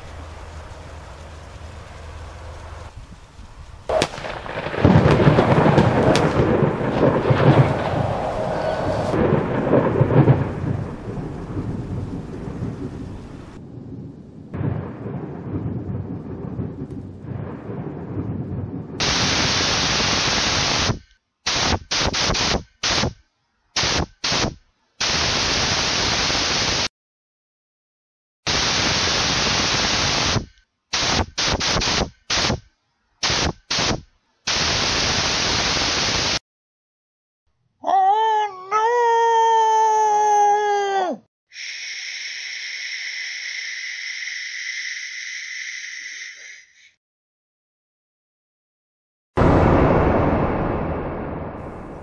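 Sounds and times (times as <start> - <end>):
low rumbling noise: 0.0 - 19.8, 49.4 - 52.0
static-like gas hiss: 19.0 - 23.1, 23.8 - 26.9, 28.5 - 32.6, 33.2 - 36.4.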